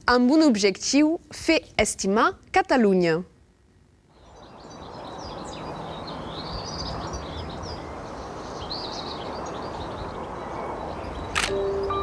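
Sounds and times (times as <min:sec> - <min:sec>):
steady low background noise: 0:00.0 - 0:12.0
small birds chirping: 0:04.1 - 0:12.0.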